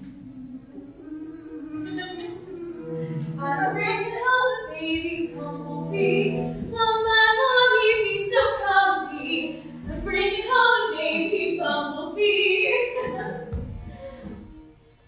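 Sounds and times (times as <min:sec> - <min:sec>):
women singing together: 0:00.0 - 0:13.6.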